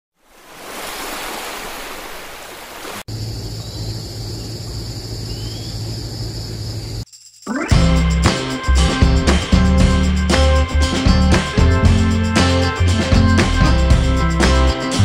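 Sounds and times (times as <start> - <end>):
sea waves on rocky shore: 0.2 - 3.1.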